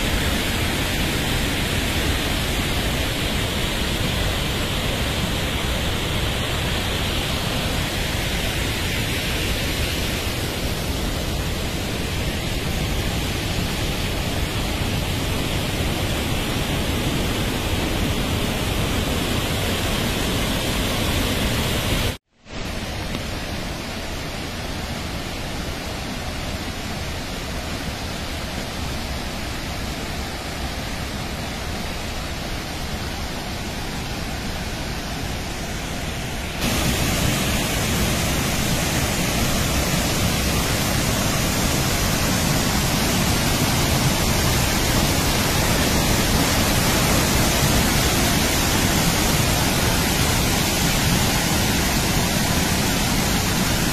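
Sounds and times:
waterfall rushing: 0.0 - 53.9.

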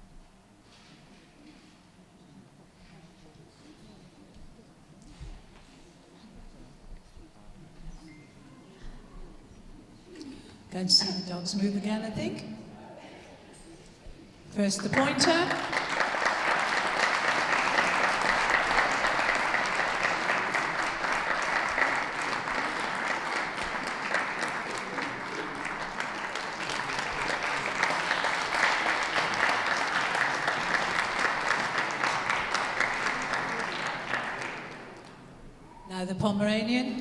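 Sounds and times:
crowd applauding: 15.0 - 35.4.

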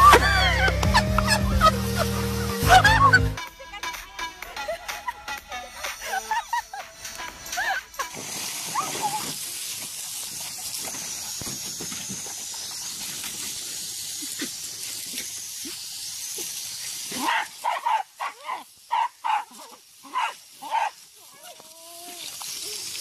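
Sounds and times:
puppies barking: 0.0 - 3.4, 17.2 - 19.5
spray nozzle hissing: 0.0 - 23.0.

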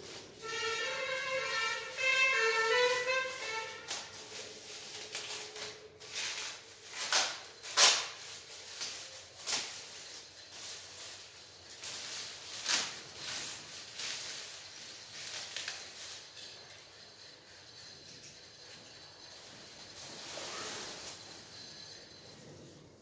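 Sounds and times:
plastic wrapping crinkling and tearing: 0.0 - 16.6.

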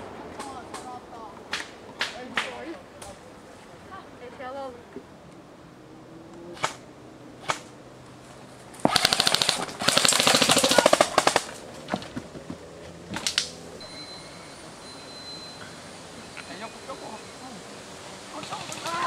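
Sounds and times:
airsoft rifle firing: 8.8 - 11.6.

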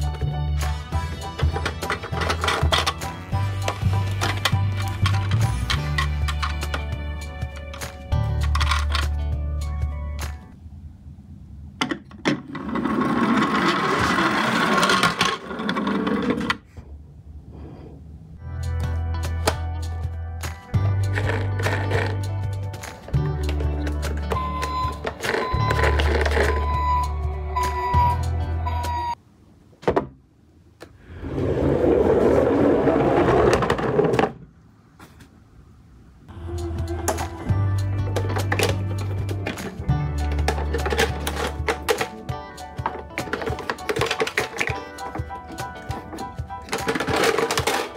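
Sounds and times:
plastic toy wheels rattling: 1.4 - 3.0, 8.4 - 9.1, 12.5 - 16.6, 21.0 - 22.3, 38.2 - 42.2, 42.8 - 45.2, 45.9 - 47.9
plastic wheels rumbling on wood: 12.3 - 16.6, 31.2 - 34.4, 42.8 - 47.9.

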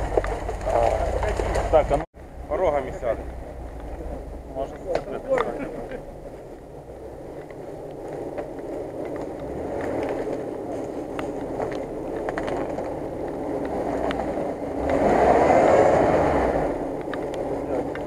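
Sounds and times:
tyre noise: 0.0 - 18.0
sharp clicks and cracks: 7.3 - 15.0, 16.9 - 18.0.

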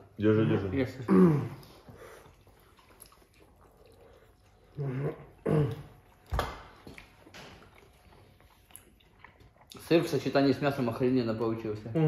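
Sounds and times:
low hum-like vocal sounds: 4.6 - 6.2.

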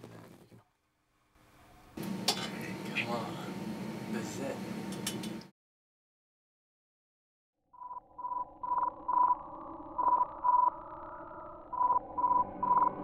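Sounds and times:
morse code beeps: 7.8 - 9.4, 11.8 - 13.0.

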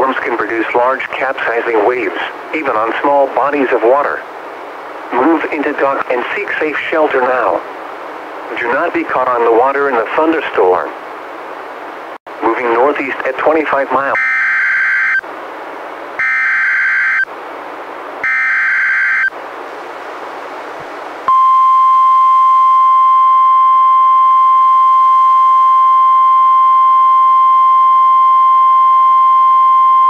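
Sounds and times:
static hiss: 0.0 - 21.3.

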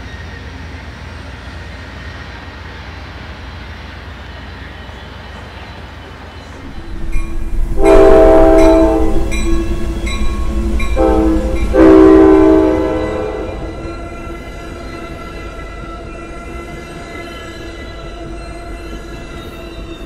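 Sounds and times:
train rumble: 0.0 - 20.0
train horn blasts: 7.6 - 9.8, 10.4 - 14.1
bell ringing: 8.5 - 11.9.

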